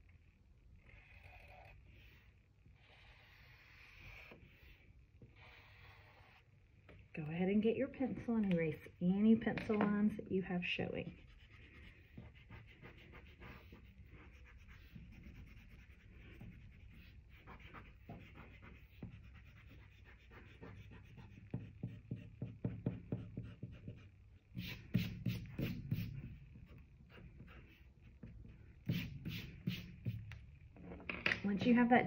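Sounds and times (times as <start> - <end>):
eraser rubbing on paper: 2.9 - 6.5, 11.0 - 27.9, 28.8 - 30.2.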